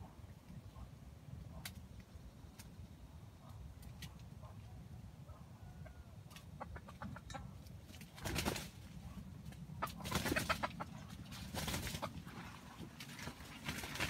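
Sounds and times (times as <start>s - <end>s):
rooster clucking: 5.8s - 7.6s, 9.7s - 12.3s.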